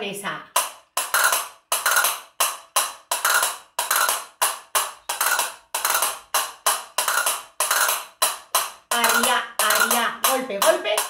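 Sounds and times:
castanets clacking: 0:00.6 - 0:11.0.

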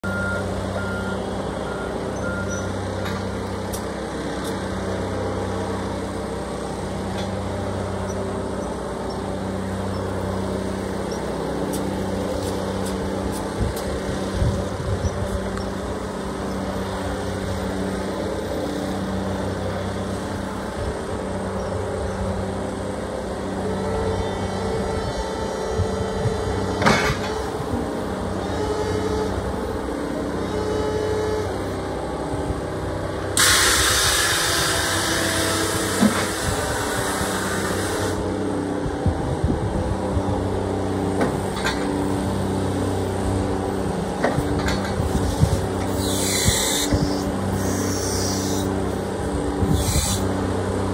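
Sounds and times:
electric motor hum and whine: 0:00.4 - 0:50.9
loud hiss: 0:33.4 - 0:38.2, 0:45.9 - 0:48.7, 0:49.7 - 0:50.3
clunks: 0:44.2 - 0:45.2.

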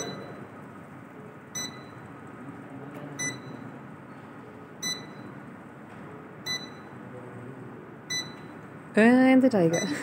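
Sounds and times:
room noise: 0:00.0 - 0:10.0
short electronic beep: 0:03.2 - 0:03.6.

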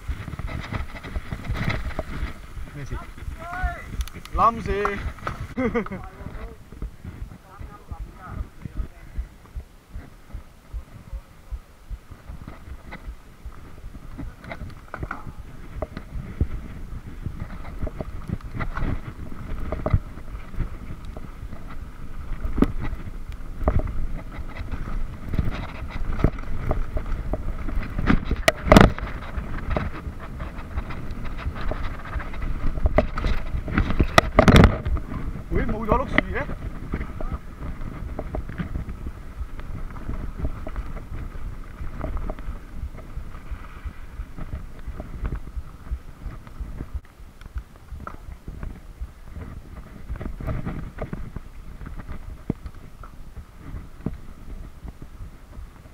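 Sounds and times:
wind and tyre rumble: 0:00.0 - 0:55.9
bike knocks and rattles: 0:12.0 - 0:55.9.

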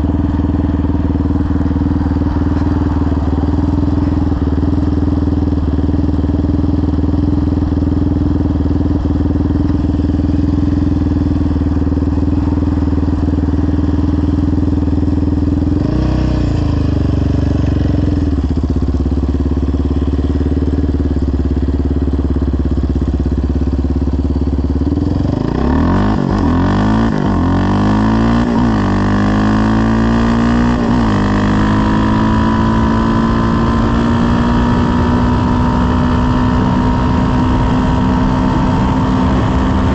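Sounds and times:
quad engine idling and revving: 0:00.0 - 0:39.9.

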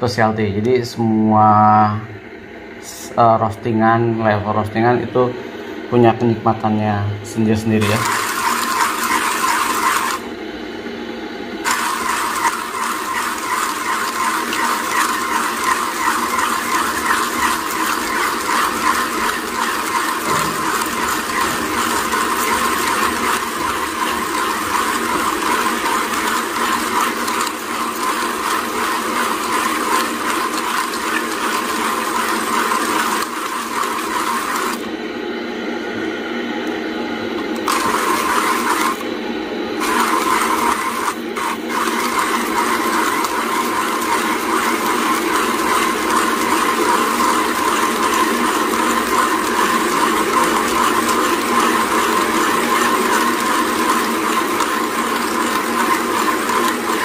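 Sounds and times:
hand coffee grinder crunching beans: 0:07.8 - 0:10.2, 0:11.7 - 0:34.8, 0:37.6 - 0:39.0, 0:39.8 - 0:57.0.

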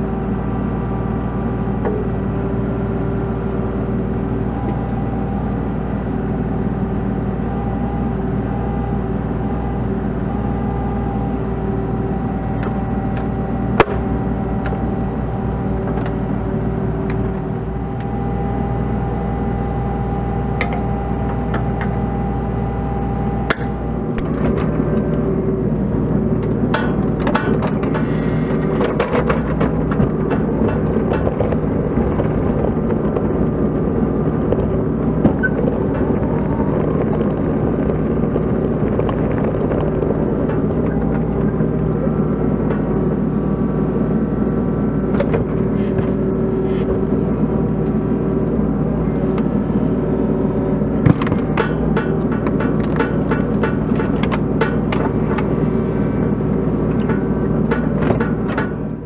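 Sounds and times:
diesel engine running: 0:00.0 - 0:59.0
metal clanks: 0:26.4 - 0:33.4, 0:51.0 - 0:59.0.

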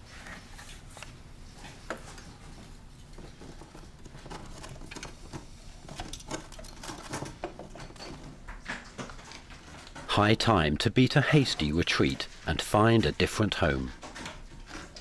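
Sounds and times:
hands handling wires and metal parts: 0:03.0 - 0:10.1.

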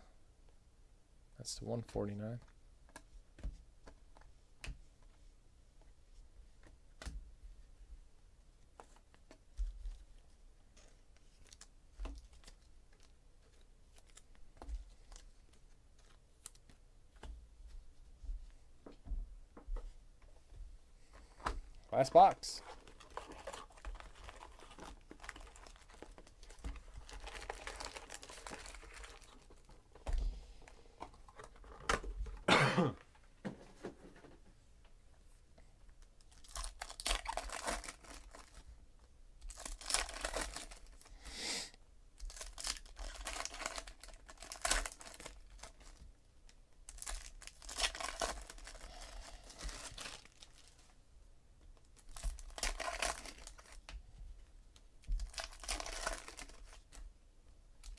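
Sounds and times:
foil wrappers tearing and crinkling: 0:22.6 - 0:29.7, 0:36.3 - 0:38.6, 0:39.5 - 0:41.1, 0:42.2 - 0:46.0, 0:46.9 - 0:50.8, 0:52.0 - 0:53.8, 0:55.2 - 0:56.9.

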